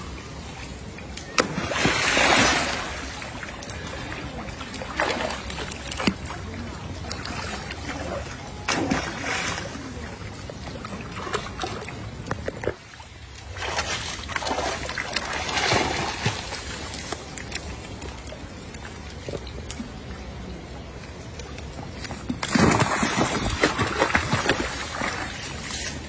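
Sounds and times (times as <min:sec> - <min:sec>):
water splashing and sloshing: 0:00.0 - 0:26.0.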